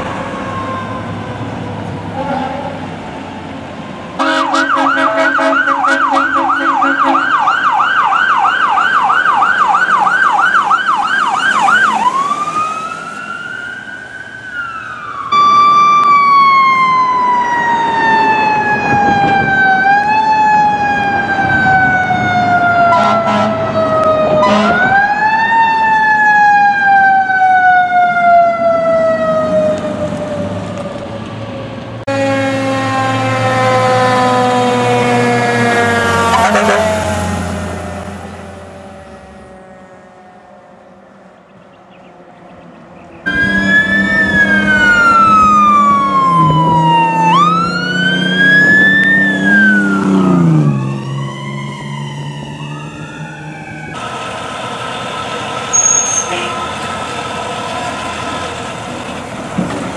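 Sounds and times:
fire truck siren wailing: 0.0 - 41.5, 43.2 - 59.9
short siren blasts: 4.1 - 31.0, 32.1 - 38.5, 43.3 - 54.4, 55.0 - 56.8.

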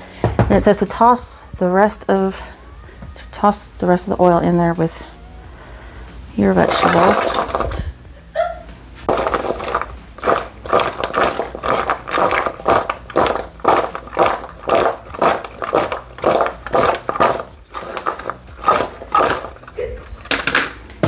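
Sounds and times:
frozen vegetables rattling in metal bowl: 6.6 - 7.9, 9.1 - 20.8.

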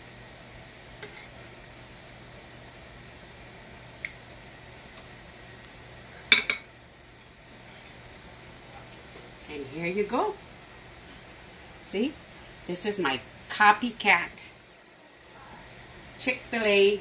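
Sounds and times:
dishes clattering: 6.3 - 6.7.

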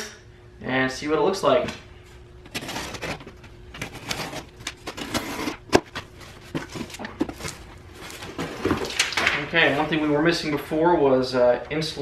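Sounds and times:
packing tape being cut: 2.5 - 5.9
cardboard scraping and rustling: 2.5 - 9.9.

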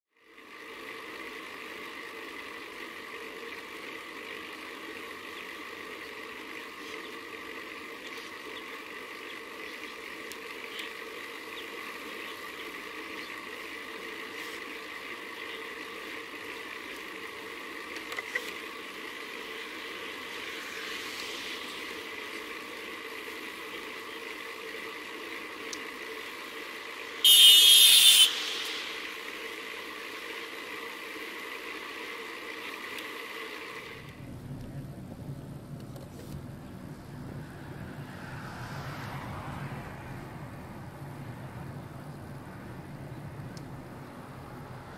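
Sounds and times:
wind and road noise: 0.4 - 44.9
loud high-pitched sound: 27.2 - 29.9.

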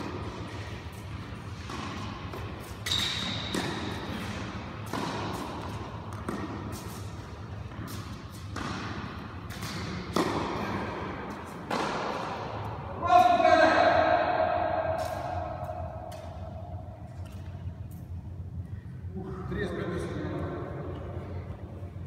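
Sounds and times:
tennis balls struck and bouncing: 0.0 - 17.6.

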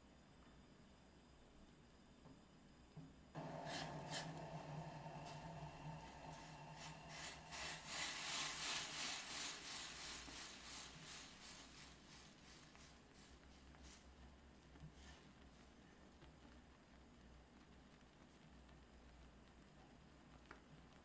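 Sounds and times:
spatula scraping a saucepan: 3.4 - 5.4, 6.3 - 13.4
syrup bubbling and hissing: 3.4 - 21.0.

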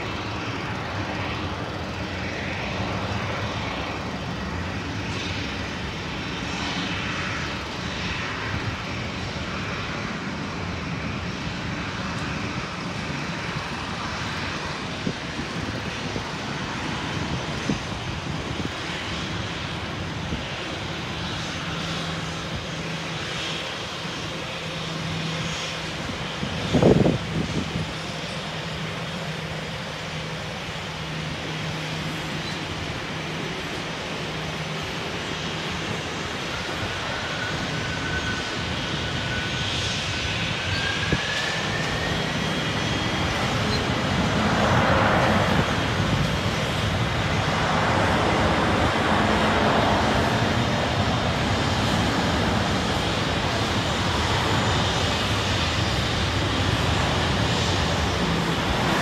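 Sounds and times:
faint engine whine: 0.0 - 59.0
jet engines at taxi idle: 0.0 - 59.0.

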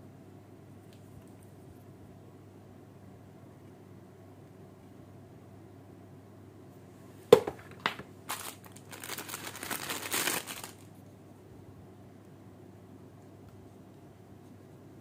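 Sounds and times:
crinkly packaging rustling: 7.5 - 10.9
packaging clicks: 8.3 - 10.8.

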